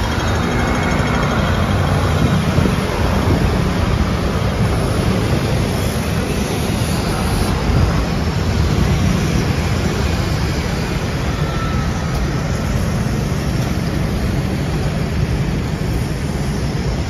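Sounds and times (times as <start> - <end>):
motor scooters passing: 0.0 - 17.0.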